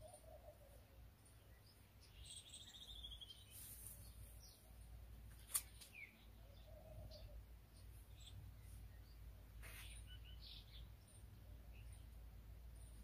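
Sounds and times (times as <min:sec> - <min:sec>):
faint bird calls: 0:00.0 - 0:01.2, 0:05.5 - 0:10.8
sharp click: 0:05.3 - 0:06.0.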